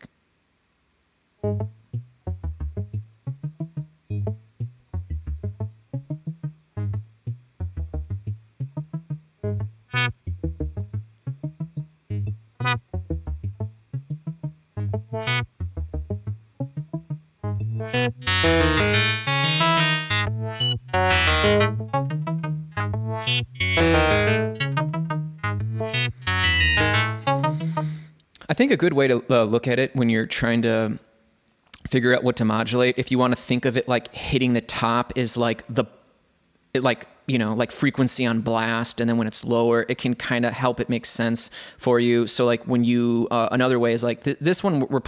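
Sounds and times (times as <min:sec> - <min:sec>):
synth playing looping notes: 0:01.4 - 0:28.1.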